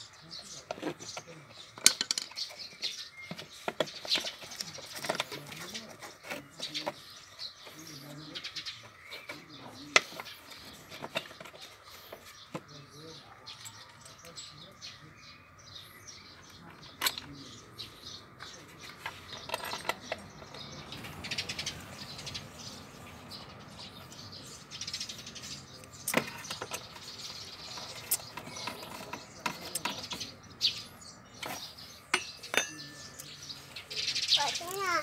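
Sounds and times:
birds chirping: 0:00.0 - 0:35.0
hand tools clicking and clinking: 0:00.6 - 0:07.0, 0:18.4 - 0:21.1, 0:31.4 - 0:33.8.

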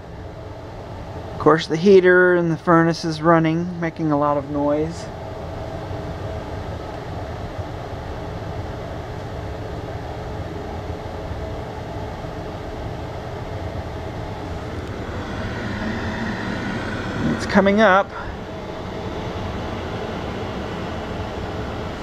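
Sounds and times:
furnace rumbling: 0:12.6 - 0:22.0.

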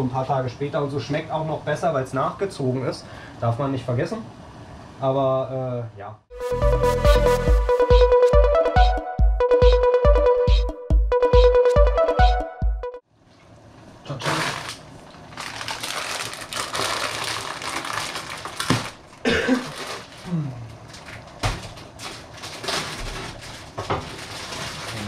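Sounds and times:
electronic music beat: 0:06.3 - 0:13.0
plastic bag crinkling: 0:14.2 - 0:25.0.

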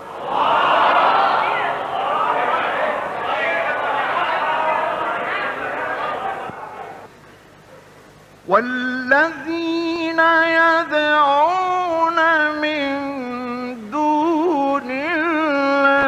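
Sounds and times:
man chanting melodic recitation: 0:08.5 - 0:16.0.

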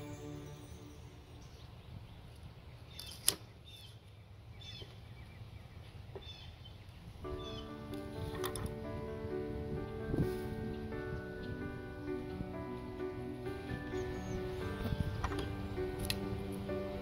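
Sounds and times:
faint bird chirps: 0:13.8 - 0:15.5.

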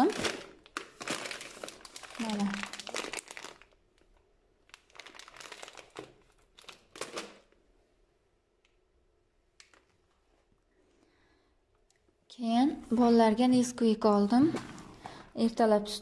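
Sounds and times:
pasta bag crinkling: 0:00.0 - 0:07.6.

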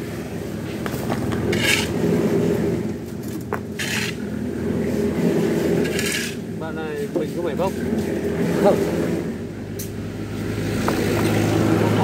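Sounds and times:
engine running steadily: 0:00.0 - 0:12.0
hand tool scraping stones: 0:00.9 - 0:02.2, 0:03.3 - 0:04.3, 0:05.0 - 0:06.5.

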